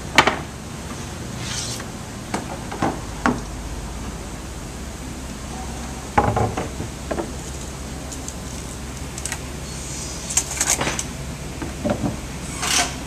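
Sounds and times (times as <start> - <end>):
steady low hum: 0.0 - 13.0
wooden block scraping: 0.9 - 1.9.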